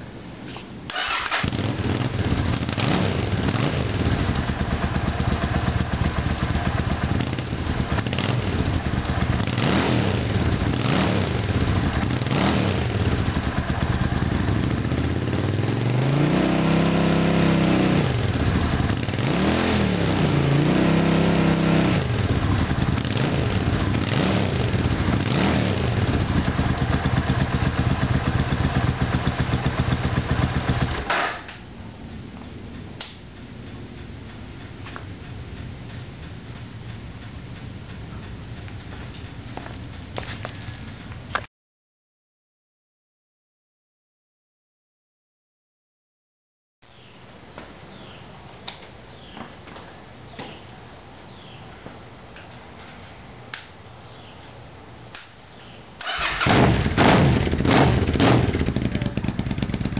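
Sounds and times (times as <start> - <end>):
motorcycle engine idling and revving: 0.9 - 31.4, 32.0 - 41.5, 56.0 - 59.9.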